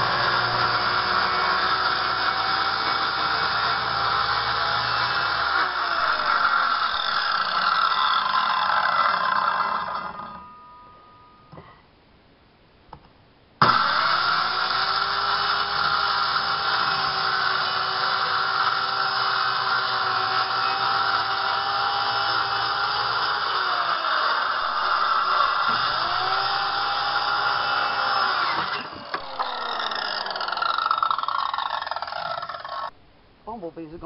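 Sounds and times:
circular saw cutting plywood: 0:00.0 - 0:10.6, 0:13.6 - 0:33.0.

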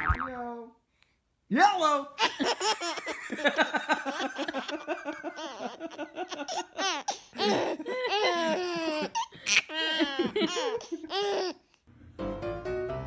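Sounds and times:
baby laughing: 0:02.2 - 0:11.7.

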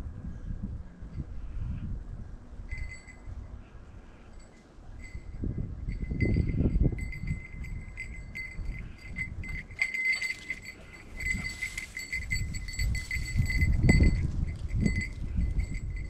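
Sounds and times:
dog collar bell jangling: 0:02.7 - 0:03.4, 0:04.3 - 0:16.0
footsteps rustling through dry grass: 0:11.0 - 0:14.8.

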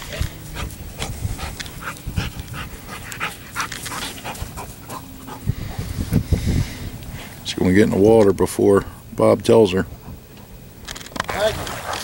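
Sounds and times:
dog panting: 0:00.5 - 0:06.8.

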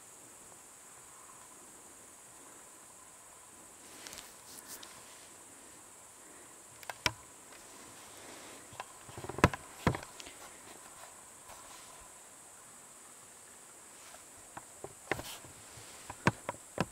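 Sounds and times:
insects chirring: 0:00.0 - 0:16.9
short rustle: 0:03.8 - 0:06.4, 0:07.4 - 0:12.2, 0:13.8 - 0:16.7
sharp clicks: 0:06.8 - 0:07.2.

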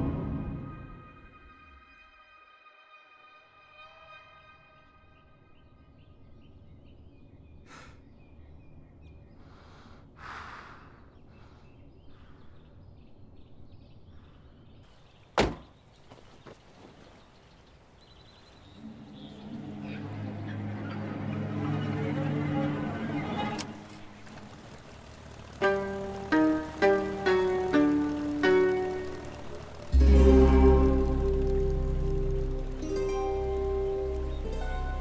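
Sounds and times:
low music tones: 0:00.0 - 0:02.3, 0:18.7 - 0:35.0
sharp loud knock: 0:15.4 - 0:15.7
low steady hum: 0:18.6 - 0:35.0.

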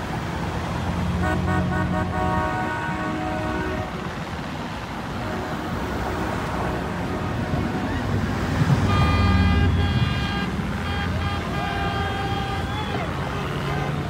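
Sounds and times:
motorboat engines rushing: 0:00.0 - 0:14.0
horn blast: 0:01.2 - 0:04.1, 0:05.2 - 0:14.0.

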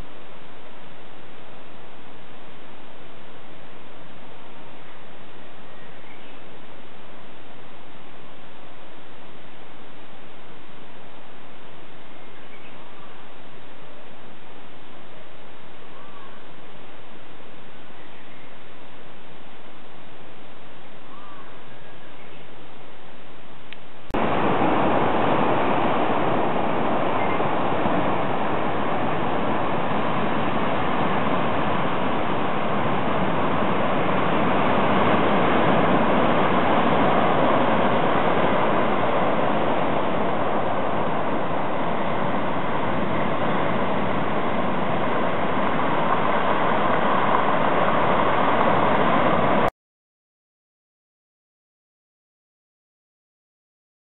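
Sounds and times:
surf breaking over rocks: 0:24.2 - 0:49.7.

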